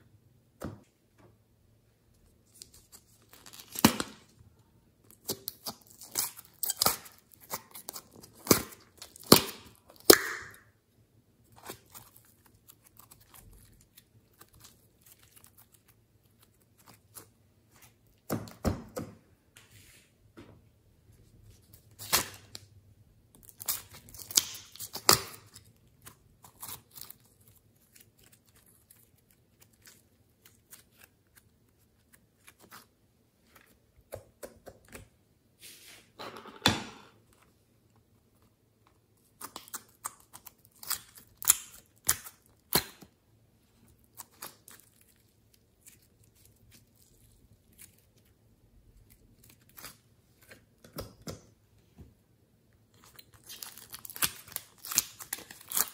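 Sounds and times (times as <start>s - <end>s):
slime crackling and peeling: 5.1s - 10.5s, 11.5s - 17.3s, 23.4s - 32.9s, 39.3s - 43.0s, 43.9s - 50.6s, 53.0s - 55.9s.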